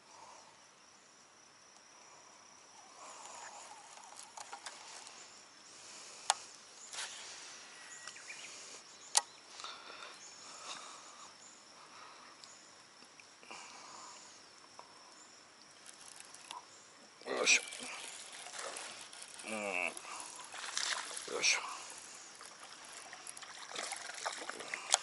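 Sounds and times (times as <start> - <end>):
insect chirring: 0.0 - 25.0
sharp clicks: 9.1 - 9.3.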